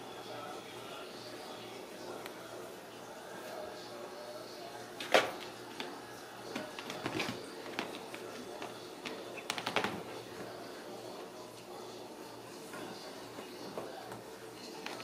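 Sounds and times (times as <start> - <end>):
kittens scrambling over furniture: 6.5 - 10.6.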